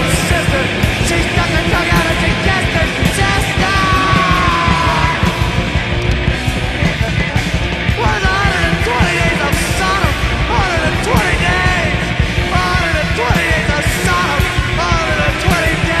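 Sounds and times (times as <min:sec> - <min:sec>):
punk rock band playing: 0:00.0 - 0:16.0
person yelling vocals: 0:01.5 - 0:05.5.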